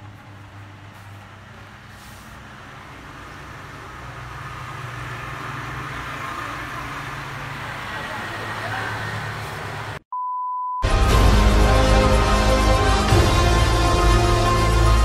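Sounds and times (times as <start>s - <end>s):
vehicle engine humming: 0.0s - 10.0s.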